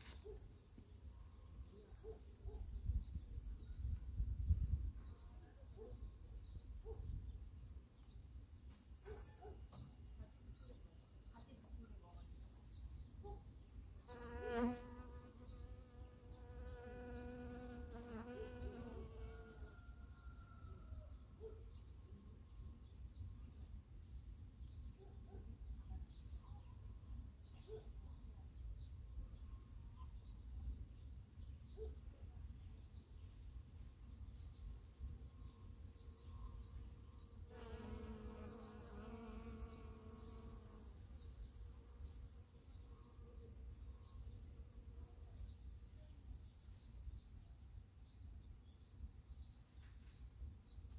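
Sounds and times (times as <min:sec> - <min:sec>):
honeybee buzzing: 0:14.1 - 0:19.5, 0:37.5 - 0:41.0.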